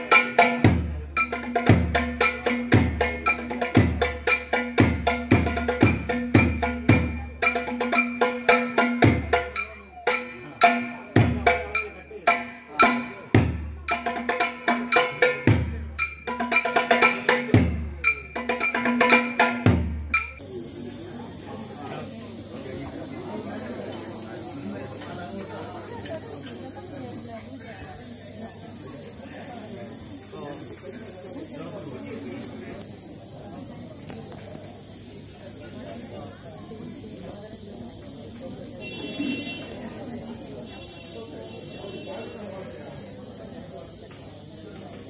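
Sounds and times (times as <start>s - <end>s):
sharp clicking percussion: 0.0s - 20.5s
crickets chirring: 0.0s - 45.0s.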